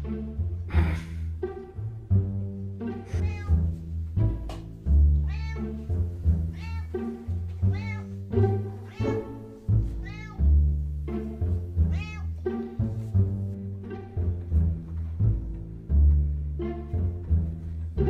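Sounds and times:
background music: 0:00.0 - 0:18.0
cat meowing: 0:03.1 - 0:03.7, 0:05.2 - 0:10.6, 0:11.9 - 0:12.4.

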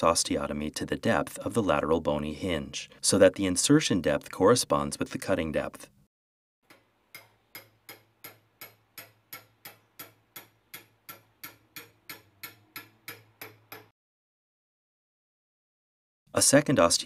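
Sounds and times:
hammer tapping a chisel: 0:06.7 - 0:14.0.

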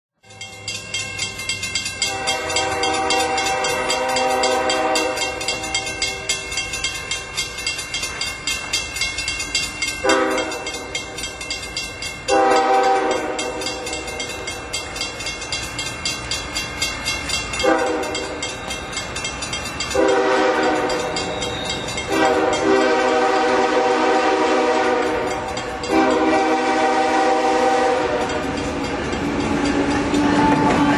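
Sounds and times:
train rumble: 0:00.2 - 0:30.9
locomotive air horn blasts: 0:02.0 - 0:06.3, 0:10.0 - 0:10.8, 0:12.3 - 0:13.6, 0:17.6 - 0:18.2, 0:20.0 - 0:21.2, 0:22.1 - 0:28.5.

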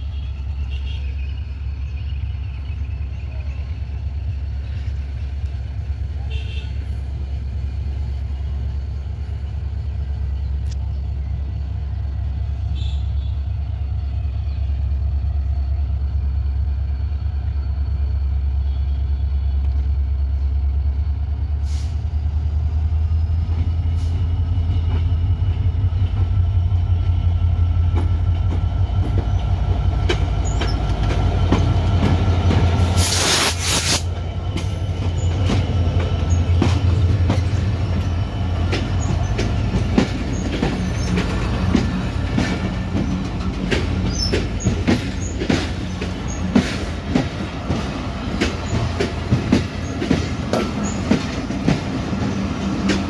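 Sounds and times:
diesel locomotive engine rumble: 0:00.0 - 0:53.0
wheels squealing on rail: 0:29.2 - 0:47.8, 0:48.4 - 0:53.0
loud hiss: 0:32.8 - 0:34.2.

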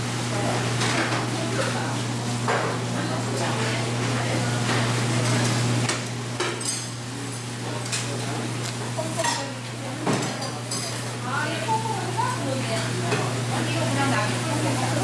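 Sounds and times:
dishes clinking and knocking: 0:09.2 - 0:11.0.

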